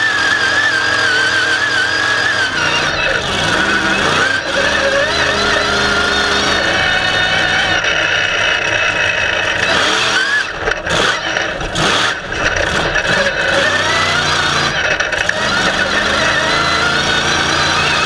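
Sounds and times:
monster truck engine running: 0.0s - 18.0s
engine knocks: 2.4s - 18.0s.

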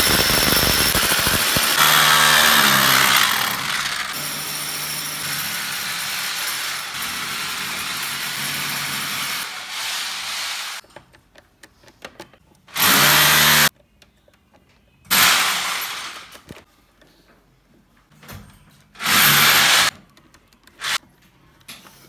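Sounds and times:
power tool running: 0.0s - 10.8s, 12.8s - 13.7s, 19.0s - 19.9s, 20.8s - 21.0s.

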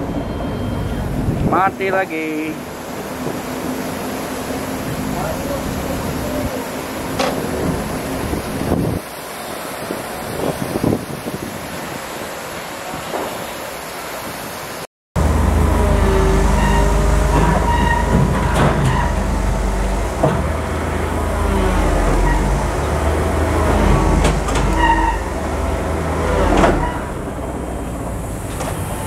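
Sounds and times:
diesel engine droning: 0.0s - 8.8s, 15.2s - 29.0s
people talking: 1.5s - 2.6s, 5.0s - 6.8s
steel tracks squealing and clanking: 15.4s - 27.6s.

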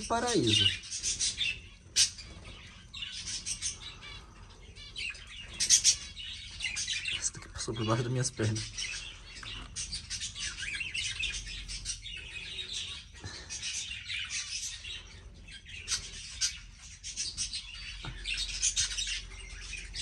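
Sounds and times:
budgerigars chattering and chirping: 0.0s - 20.0s.

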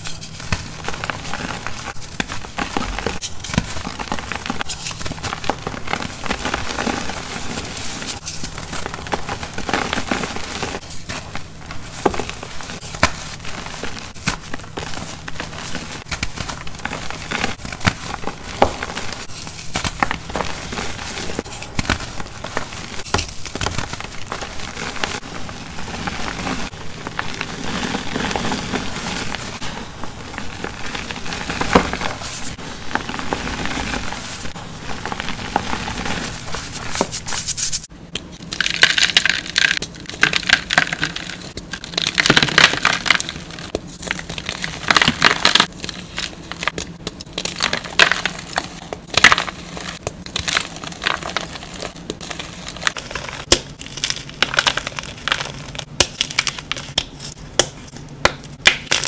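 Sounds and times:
chalk crunching in hands: 0.0s - 37.9s.

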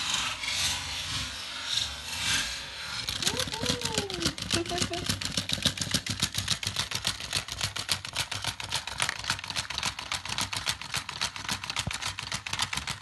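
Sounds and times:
toy dog clicking rapidly: 3.0s - 13.0s.

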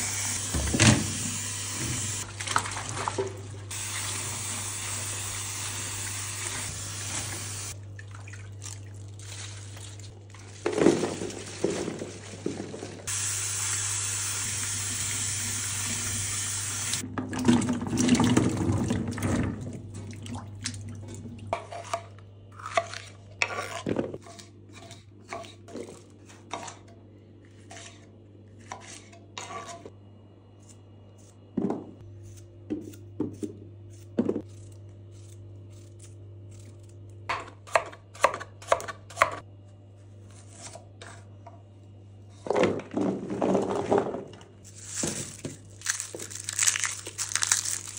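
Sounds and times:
water running: 0.0s - 10.2s, 13.0s - 21.5s.

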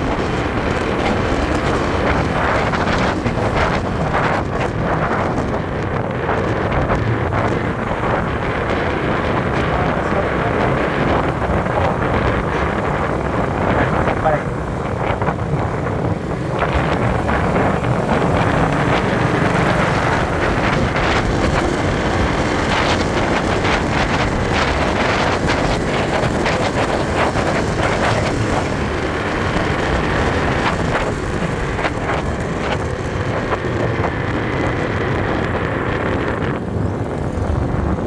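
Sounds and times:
scooter engine running: 0.0s - 38.0s
wind buffeting microphone: 0.0s - 38.0s.

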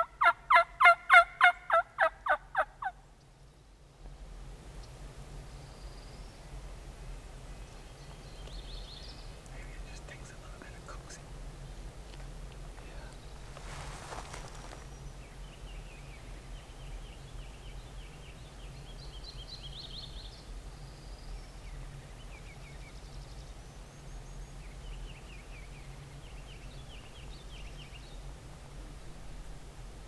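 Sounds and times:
low background rumble: 0.0s - 30.0s
birds chirping: 7.6s - 28.3s
rustling: 12.0s - 15.0s.

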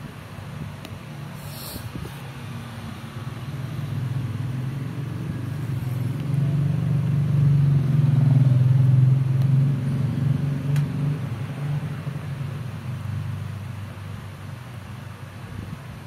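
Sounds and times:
vehicle engine passing by: 2.1s - 13.8s.

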